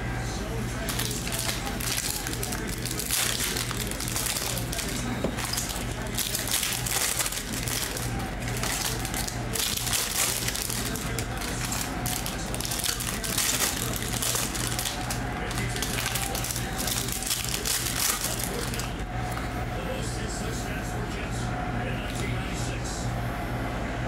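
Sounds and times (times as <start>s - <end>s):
plastic wrappers crinkling and tearing: 0.8s - 19.0s.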